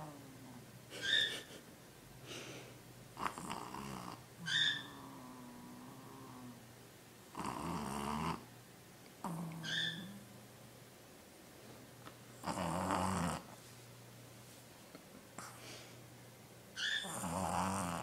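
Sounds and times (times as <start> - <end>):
animal snoring with whistle: 16.8 - 18.0.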